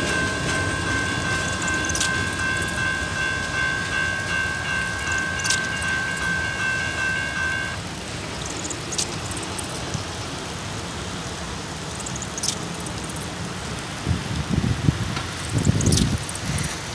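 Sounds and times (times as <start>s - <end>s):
rain hissing on pavement: 7.7s - 16.9s
faint ticks: 15.2s - 16.5s.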